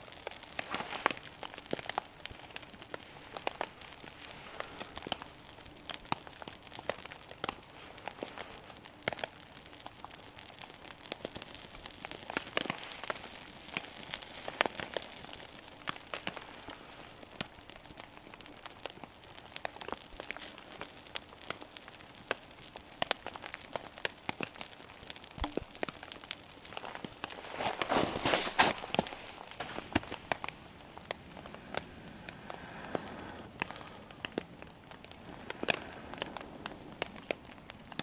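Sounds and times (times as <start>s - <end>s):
twigs shifted by hand: 0.0s - 9.4s, 23.0s - 38.0s
small fire crackling and popping: 0.0s - 38.0s.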